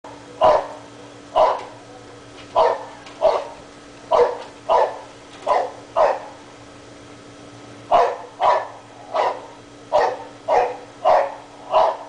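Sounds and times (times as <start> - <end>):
faint steady hum: 0.1 - 12.0
dog barking: 0.4 - 1.8, 2.5 - 6.4, 7.9 - 12.0.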